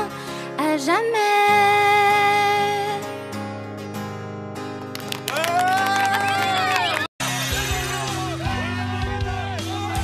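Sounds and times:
song with steady bass notes: 0:07.2 - 0:10.0.

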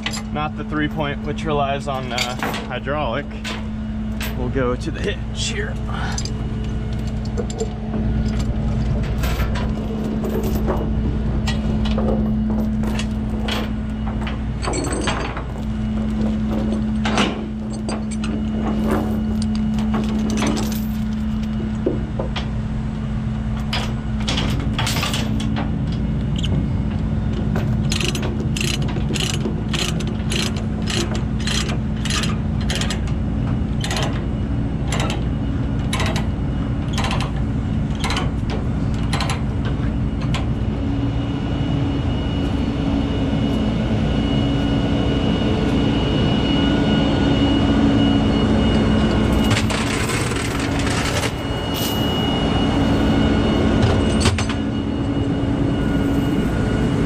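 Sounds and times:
chain links clanking: 0:06.0 - 0:21.6, 0:23.6 - 0:25.6
ratchet binder clicking: 0:27.8 - 0:33.0.

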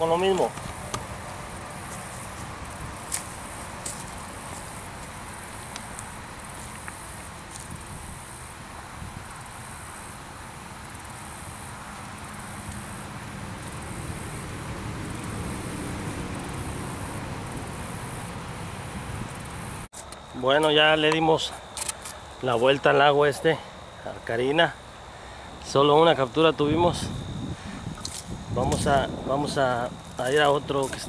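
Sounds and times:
insects chirring: 0:00.0 - 0:31.0
wind rumble on microphone: 0:00.2 - 0:09.7, 0:13.4 - 0:19.9, 0:26.4 - 0:31.0.

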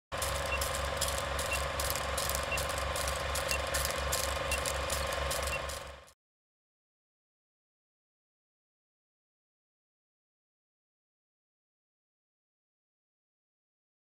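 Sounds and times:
film projector clatter: 0:00.1 - 0:06.2
short high beeps: 0:00.3 - 0:05.8.

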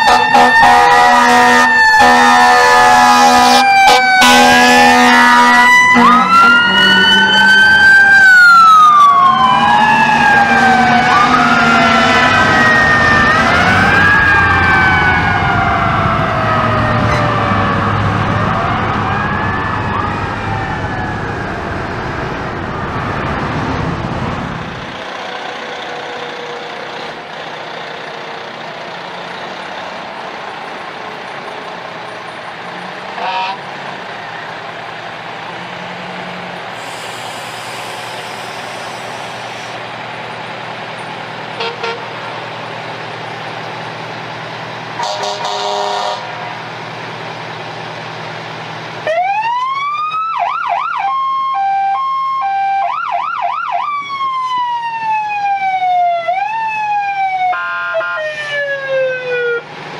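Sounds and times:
short horn blasts: 0:00.0 - 0:06.6, 0:33.2 - 0:33.6, 0:41.6 - 0:42.1, 0:45.0 - 0:46.5
electronic siren wailing: 0:00.0 - 0:23.6, 0:45.0 - 0:46.6, 0:49.0 - 0:59.7
vehicle engines running: 0:00.0 - 0:50.1, 0:58.2 - 0:59.9.

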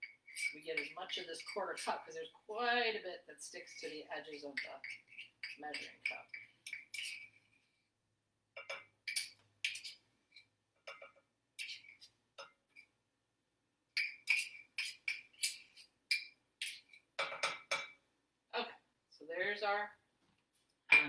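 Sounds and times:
knife scraping measuring cup: 0:00.0 - 0:02.0, 0:03.7 - 0:07.6, 0:08.6 - 0:10.0, 0:11.6 - 0:12.1, 0:14.0 - 0:17.5.

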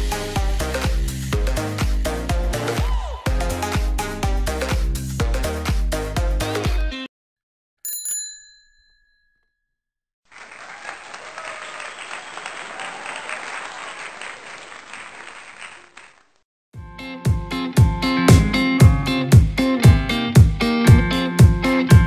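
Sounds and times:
bright bell ding: 0:07.8 - 0:09.7
applause: 0:10.3 - 0:16.4.

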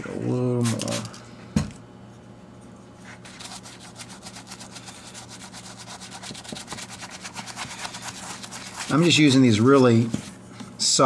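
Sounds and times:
brush scrubbing leather: 0:03.2 - 0:09.4.

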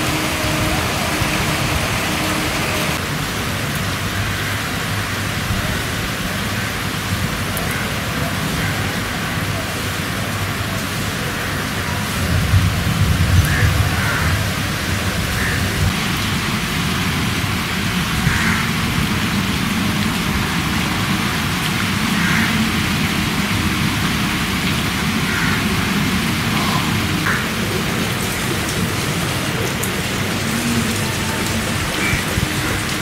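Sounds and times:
rain on water and leaves: 0:00.0 - 0:33.0.

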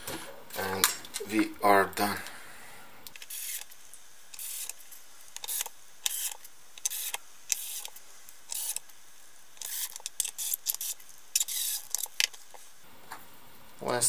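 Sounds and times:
cordless drill driving screws: 0:08.5 - 0:08.8, 0:09.6 - 0:12.1.

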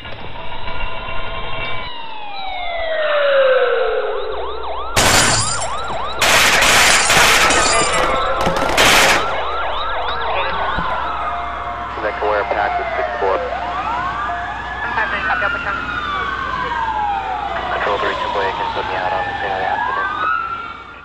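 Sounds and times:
police siren wailing: 0:00.0 - 0:21.0
glass breaking: 0:05.0 - 0:09.6
rapid gunfire: 0:05.0 - 0:09.6.

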